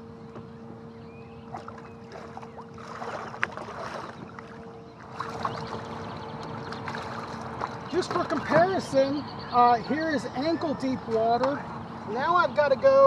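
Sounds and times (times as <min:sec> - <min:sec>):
shallow water splashing: 0:01.5 - 0:08.6.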